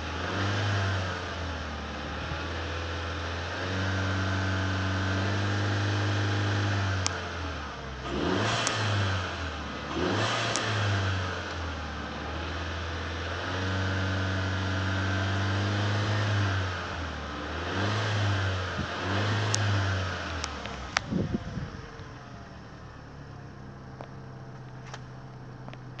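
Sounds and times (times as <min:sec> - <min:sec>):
car engine revving and idling: 0:00.0 - 0:26.0
sharp clicks: 0:20.4 - 0:21.3.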